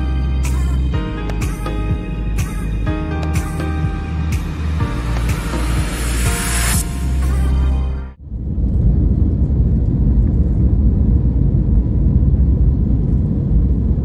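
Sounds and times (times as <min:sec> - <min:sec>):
background music: 0:00.0 - 0:08.2
jet airliner cabin rumble: 0:00.0 - 0:14.0.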